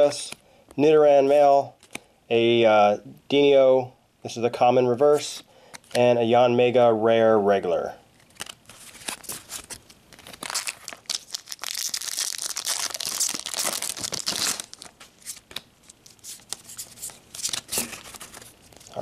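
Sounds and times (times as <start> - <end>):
foil wrapper crinkling and tearing: 8.2 - 19.0.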